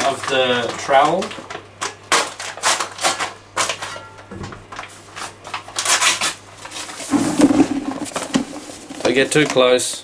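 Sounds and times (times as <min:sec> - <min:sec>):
plastic bag crinkling and tearing: 0:04.8 - 0:09.5.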